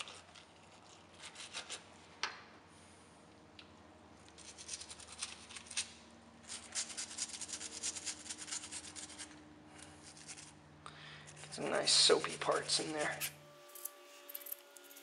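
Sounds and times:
cotton swab scrubbing metal: 0:11.4 - 0:13.3.

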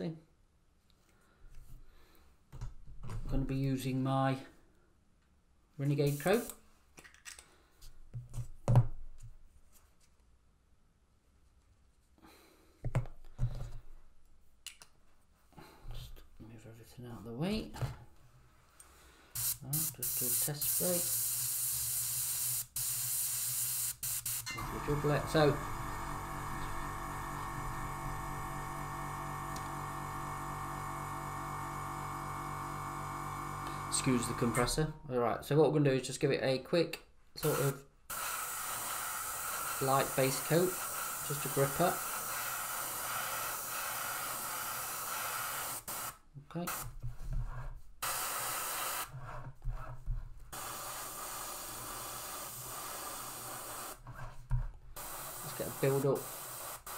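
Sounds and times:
airbrush spraying paint: 0:06.0 - 0:06.6, 0:19.4 - 0:28.8, 0:37.4 - 0:46.9, 0:48.0 - 0:49.2, 0:50.5 - 0:54.0, 0:55.0 - 0:56.9
airbrush compressor humming: 0:23.6 - 0:34.9, 0:37.4 - 0:46.1, 0:55.0 - 0:56.9.

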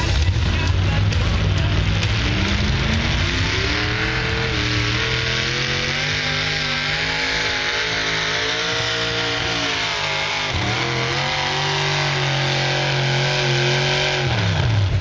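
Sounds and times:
tractor engine under load: 0:00.0 - 0:15.0.

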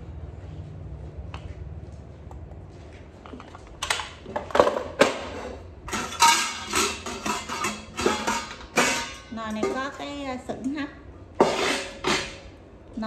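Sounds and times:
metallic clanks and rattles: 0:03.2 - 0:10.2.

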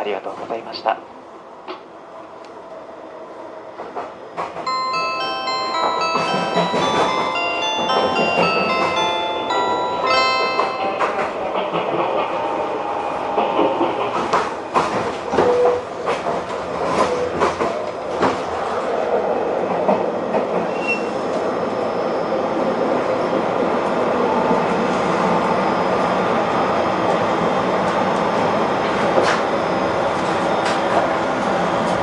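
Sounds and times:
train running rumble: 0:03.7 - 0:21.5
high wheel squeal: 0:20.7 - 0:22.4.

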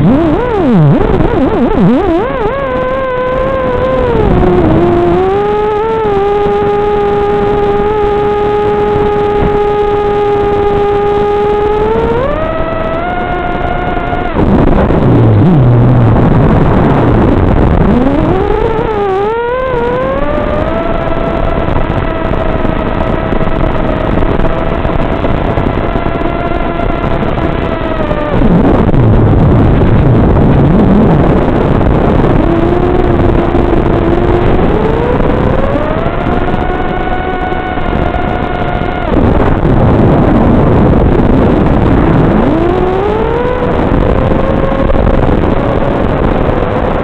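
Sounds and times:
quadcopter motors whining: 0:00.0 - 0:24.7, 0:25.9 - 0:45.0
rush of air: 0:26.8 - 0:37.1.

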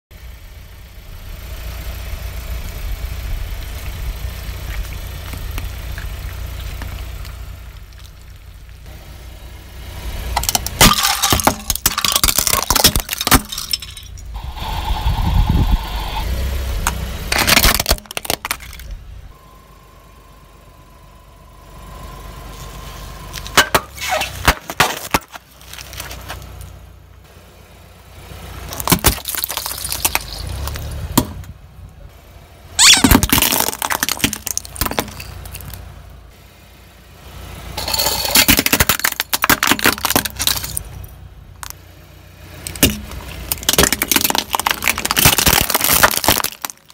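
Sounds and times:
car engine rumble: 0:00.1 - 0:46.9
plastic cracking and crunching: 0:10.4 - 0:13.6, 0:17.3 - 0:18.9, 0:32.8 - 0:35.8, 0:42.7 - 0:46.9.

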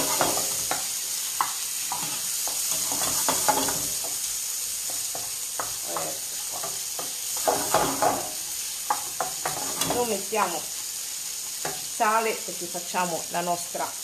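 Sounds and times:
spoon scraping and knocking pan: 0:00.0 - 0:10.3, 0:11.5 - 0:12.0
prawns sizzling in frying pan: 0:00.0 - 0:14.0.

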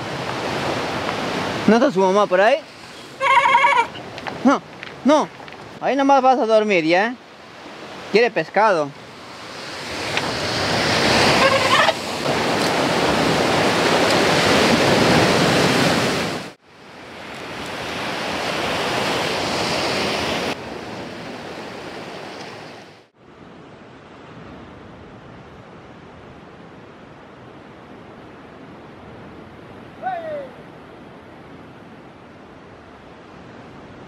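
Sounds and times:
surf breaking on rocks: 0:00.0 - 0:16.6.

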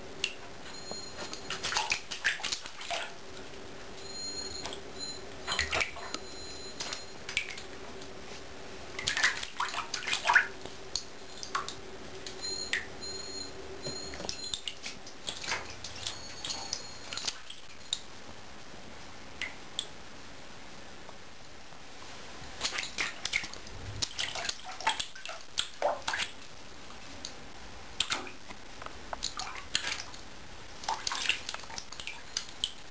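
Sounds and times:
cat's paws splashing in water: 0:01.2 - 0:03.2, 0:09.0 - 0:10.5, 0:22.6 - 0:26.4, 0:29.2 - 0:30.2, 0:30.8 - 0:32.8.

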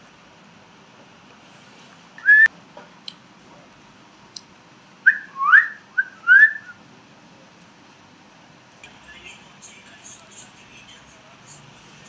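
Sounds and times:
parakeet whistling: 0:02.2 - 0:02.5, 0:05.0 - 0:06.8.

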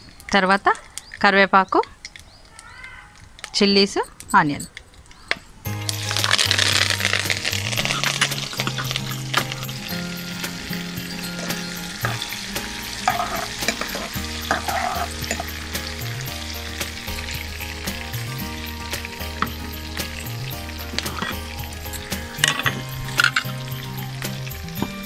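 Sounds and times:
food sizzling in hot oil: 0:05.6 - 0:25.0
metal spatula scraping a pan: 0:13.0 - 0:15.9.

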